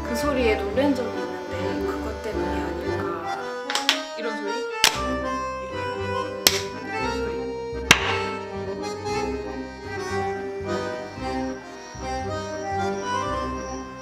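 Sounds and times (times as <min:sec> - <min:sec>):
background music: 0:00.0 - 0:14.0
plastic bottle popping: 0:03.7 - 0:04.2, 0:06.5 - 0:06.8, 0:07.9 - 0:08.4.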